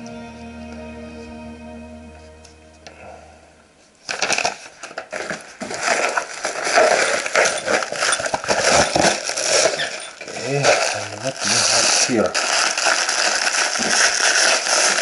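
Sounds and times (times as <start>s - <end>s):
plastic film crinkling: 4.0s - 15.0s.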